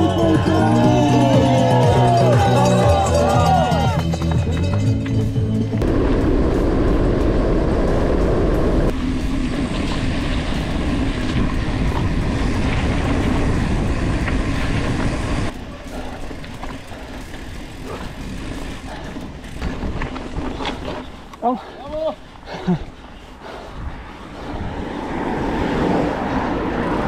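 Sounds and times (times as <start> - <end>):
bike tyres rumbling and rattling: 0.0 - 27.0
wind rushing on microphone: 5.8 - 27.0.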